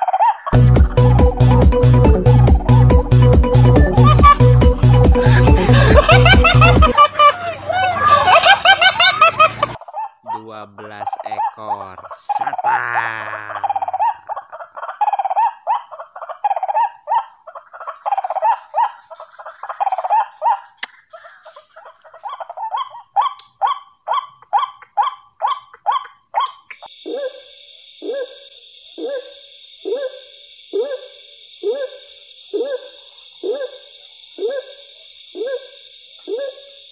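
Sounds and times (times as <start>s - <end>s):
steady high hiss: 3.5s - 27.0s
waterhen calling: 3.8s - 26.6s.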